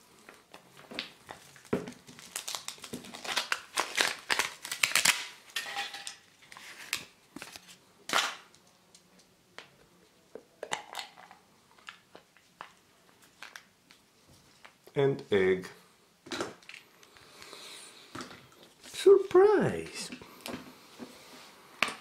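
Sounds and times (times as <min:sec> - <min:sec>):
foil wrapper crinkling and tearing: 0:01.3 - 0:08.6, 0:13.2 - 0:14.0.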